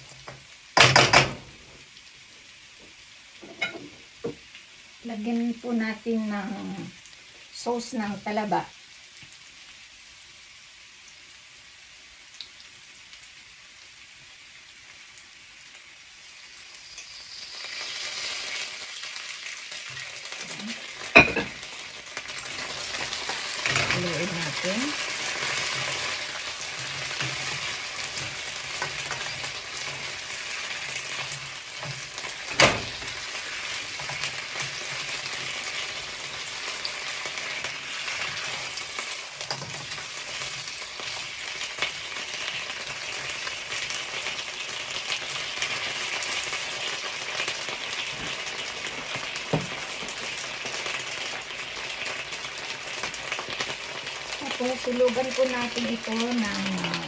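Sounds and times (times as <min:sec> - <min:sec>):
chicken wings sizzling in a pan: 0:00.0 - 0:57.0
spatula stirring in pan: 0:20.7 - 0:50.9.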